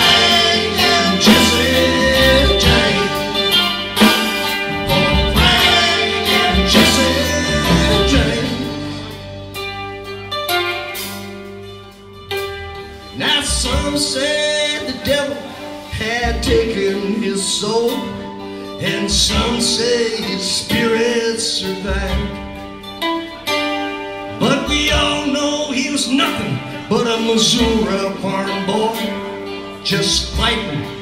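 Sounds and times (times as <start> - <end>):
low bass hits: 0.0 - 10.1
live country rock band: 0.0 - 31.0.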